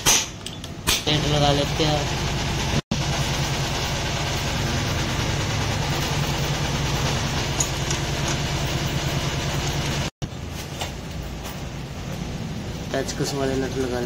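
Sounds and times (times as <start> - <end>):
small engine idling: 1.1 - 10.1.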